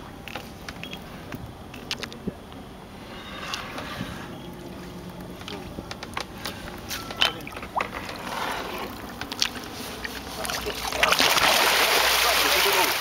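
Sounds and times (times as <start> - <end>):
fish splashing in water: 7.5 - 13.0.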